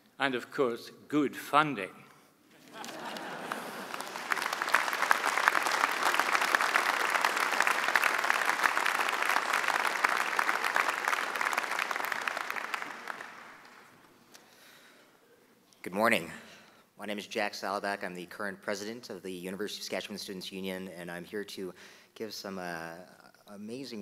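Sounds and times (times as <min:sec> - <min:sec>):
audience applause: 0:02.6 - 0:14.1.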